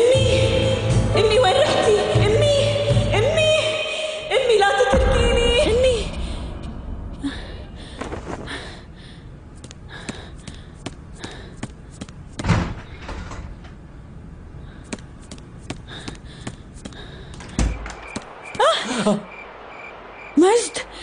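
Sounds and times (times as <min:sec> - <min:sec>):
door slamming thud: 0:12.4 - 0:13.5.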